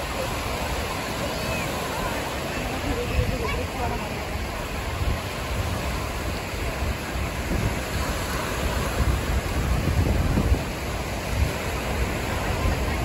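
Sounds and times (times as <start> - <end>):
small waves breaking: 0.0 - 13.0
wind rumbling on microphone: 0.0 - 13.0.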